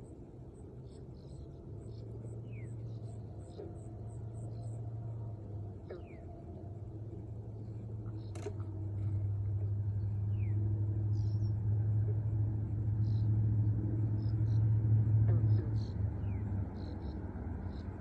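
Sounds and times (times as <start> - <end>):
faint bird chirps: 0.0 - 13.4
low engine drone: 0.0 - 18.0
sharp click: 8.2 - 8.7.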